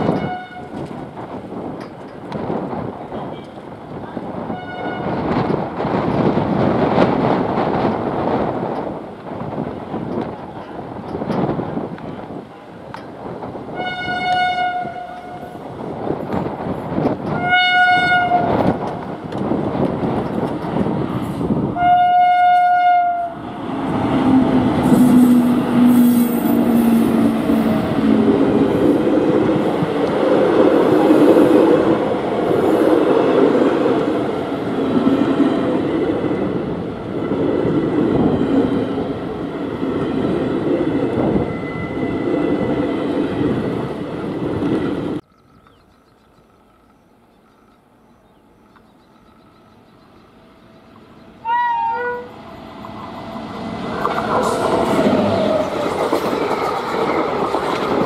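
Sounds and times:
locomotive horn blast: 0.0s - 0.8s, 4.5s - 5.2s, 13.8s - 15.6s, 17.3s - 18.6s, 21.8s - 23.5s, 51.4s - 52.4s
train coaches rolling on track: 0.0s - 58.0s.

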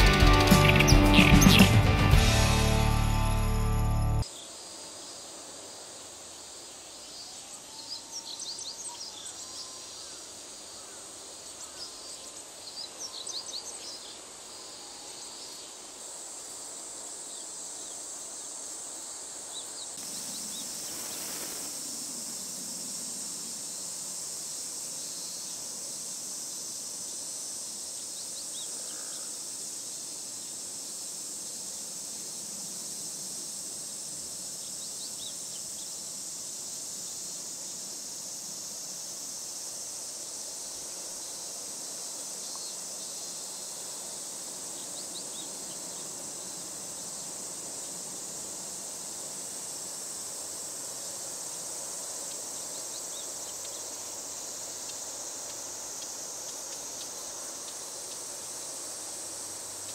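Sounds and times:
high-pitched insect chorus: 0.0s - 59.9s
bird chirps: 0.3s - 1.9s.

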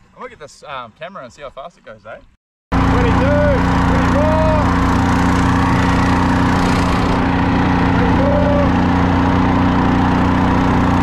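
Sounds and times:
boat motor running: 2.7s - 11.0s.

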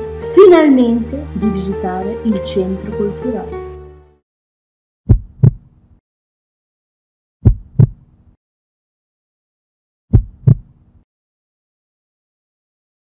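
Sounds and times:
heartbeat double thumps: 5.1s - 5.7s, 7.4s - 8.1s, 10.1s - 10.8s.

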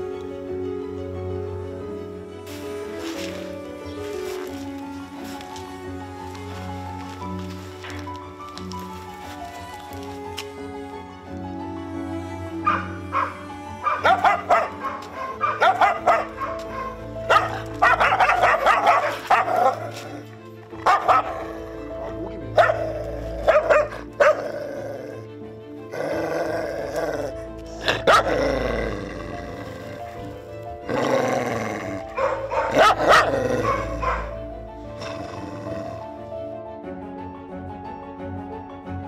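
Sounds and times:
background music: 0.0s - 39.0s
dog barking and crying: 12.6s - 25.2s, 26.1s - 28.6s, 31.8s - 35.8s.

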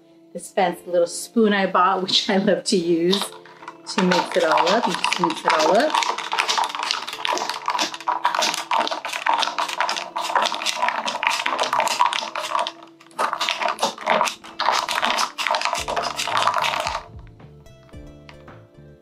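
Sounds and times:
spoon clinking ice in glass: 3.1s - 17.1s.

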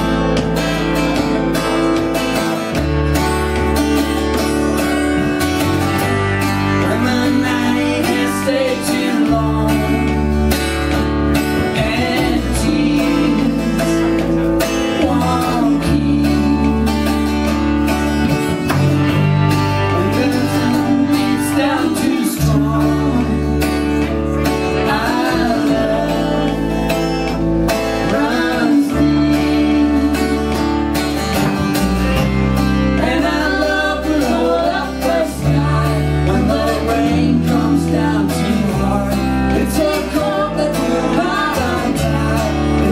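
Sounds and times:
acoustic guitar strumming: 0.0s - 42.9s
low sustained bass notes: 0.0s - 42.9s
man singing: 6.6s - 17.4s, 19.8s - 30.8s, 32.9s - 42.9s
woman singing harmony: 24.8s - 26.8s, 28.0s - 30.7s, 33.0s - 42.9s.

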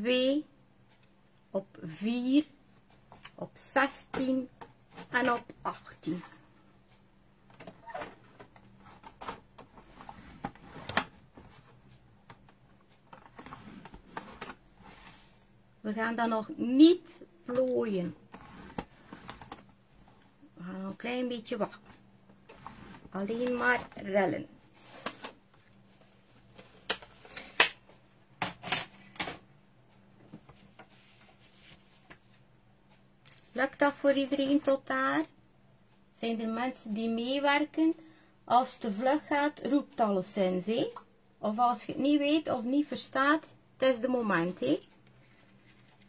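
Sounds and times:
paper rustling: 45.2s - 46.0s.

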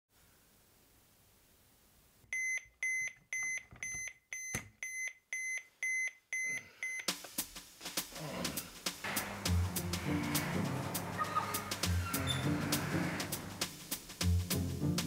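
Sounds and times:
music: 7.1s - 15.0s.

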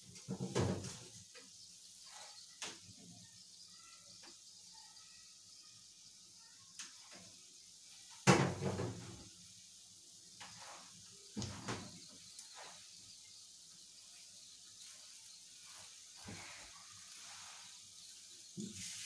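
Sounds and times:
light knocks and clatters: 0.1s - 1.6s, 10.4s - 12.8s.

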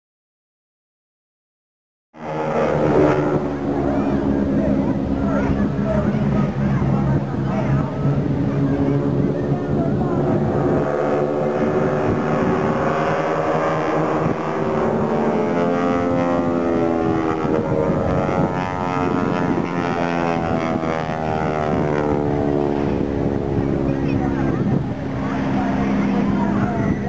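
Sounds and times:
propeller plane engines droning: 2.2s - 27.0s.

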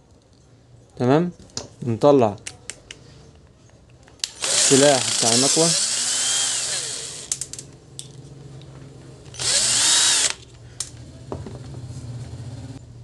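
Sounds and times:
cordless drill spinning: 4.2s - 7.5s, 9.3s - 10.5s
metallic clicks of small parts: 7.3s - 8.2s.

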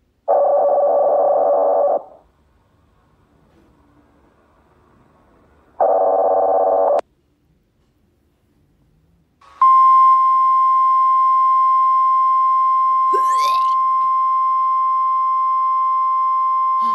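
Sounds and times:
harsh buzzing alarm tone: 13.1s - 14.1s.

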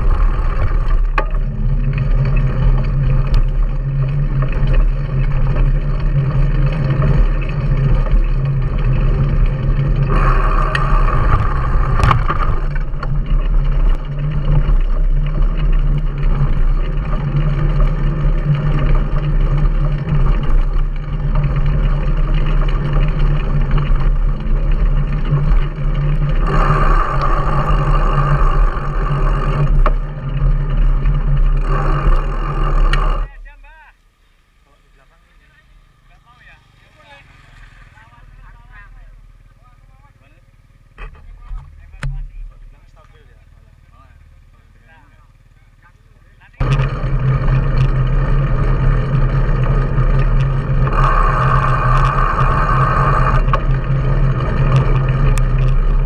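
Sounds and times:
bike knocks and rattles: 0.0s - 33.4s
bike tyres rolling on dirt: 0.0s - 56.0s.

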